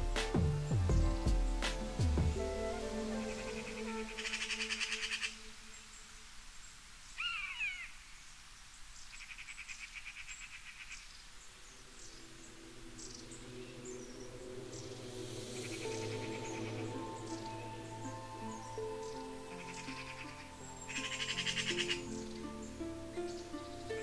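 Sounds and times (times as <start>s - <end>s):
soft music with low tones: 0.0s - 6.4s, 11.7s - 24.0s.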